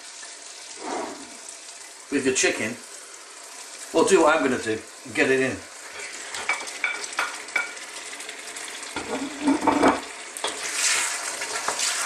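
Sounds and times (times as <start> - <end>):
gravy sizzling in a wok: 0.0 - 12.0
wooden spoon scraping a wok: 10.5 - 12.0.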